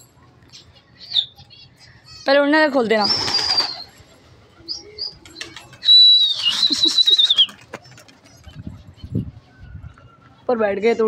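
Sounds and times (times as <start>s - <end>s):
pigeon wings flapping: 3.0s - 3.9s, 5.3s - 8.6s.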